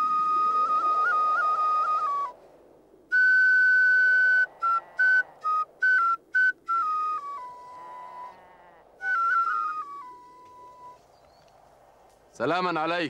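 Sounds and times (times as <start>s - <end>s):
wooden flute melody: 0.0s - 2.4s, 3.1s - 8.4s, 9.0s - 11.3s.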